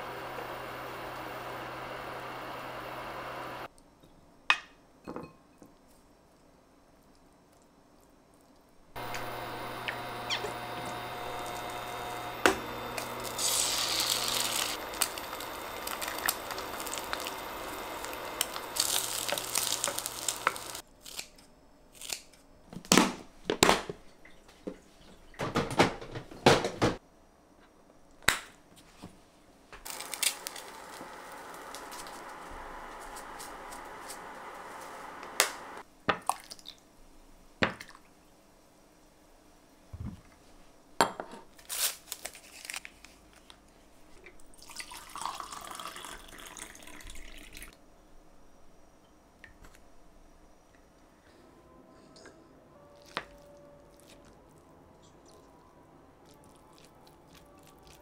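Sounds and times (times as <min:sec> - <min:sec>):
food sizzling in pan: 0:09.0 - 0:20.8, 0:29.8 - 0:35.8.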